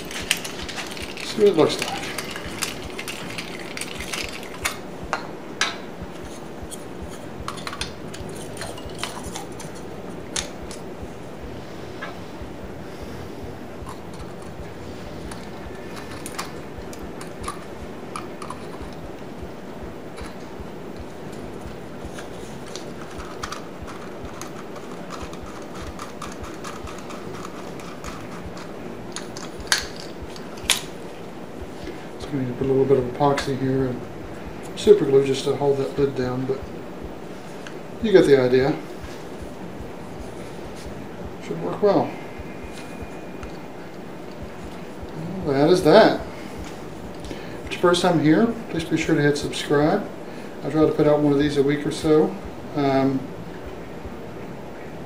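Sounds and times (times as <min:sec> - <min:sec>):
wooden parts clicking and tapping: 0:00.0 - 0:10.9, 0:20.1 - 0:30.9
low background hum: 0:00.0 - 0:55.0.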